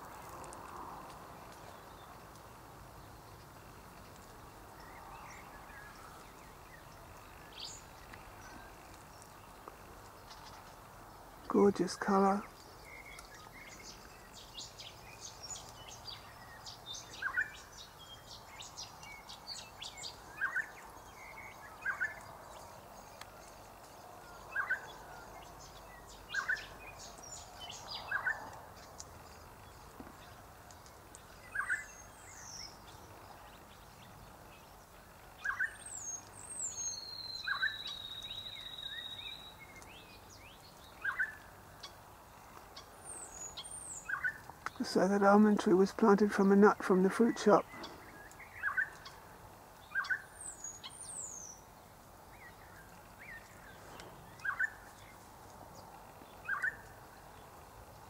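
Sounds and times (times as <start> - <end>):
high bird chirps: 35.4 - 39.8.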